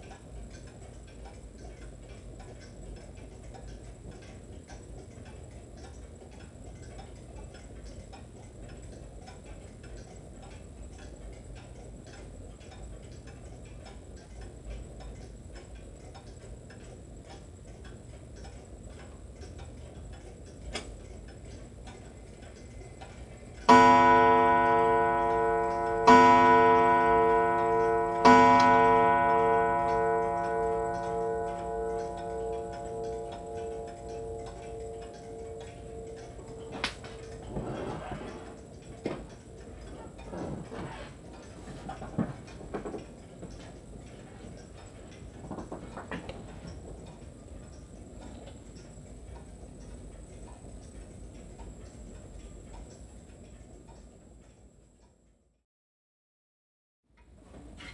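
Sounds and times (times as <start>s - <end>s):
wall clock ticking: 0.0s - 55.4s
clock striking gong: 23.6s - 40.9s.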